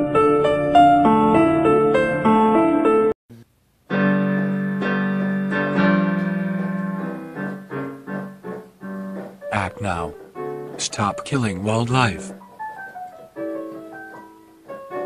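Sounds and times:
piano music: 0.0 - 3.2, 3.9 - 15.0.

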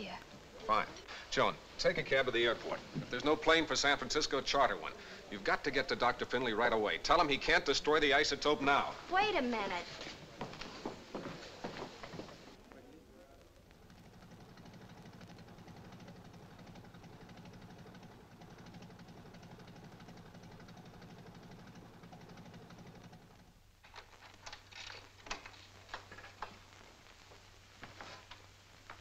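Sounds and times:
motorboat engine droning: 13.8 - 23.5.

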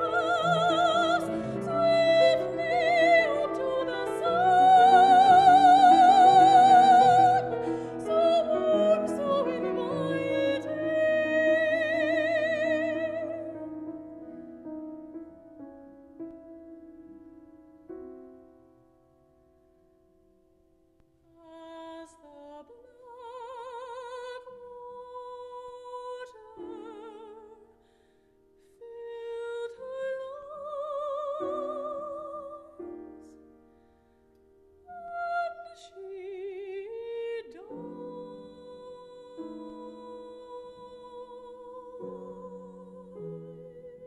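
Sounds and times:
woman singing opera: 0.0 - 13.7, 21.3 - 27.7, 28.8 - 33.0, 34.9 - 44.0
grand piano accompaniment: 0.0 - 21.8, 23.4 - 44.0.

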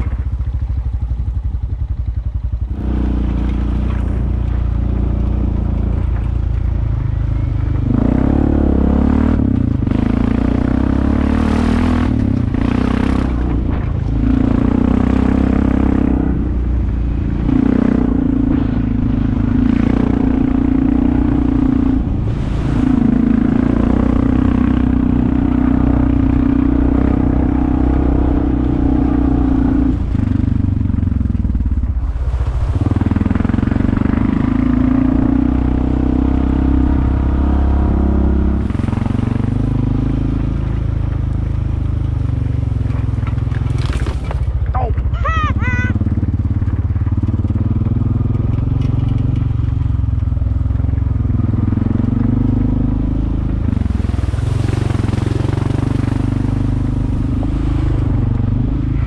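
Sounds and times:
clatter: 0.0 - 8.1, 42.2 - 44.8, 46.2 - 51.3
off-road vehicle engine under load: 0.0 - 59.0.

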